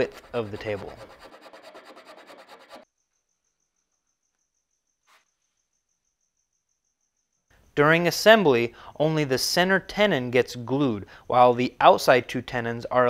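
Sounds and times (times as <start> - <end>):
hand tool rasping wood: 0.0 - 2.8.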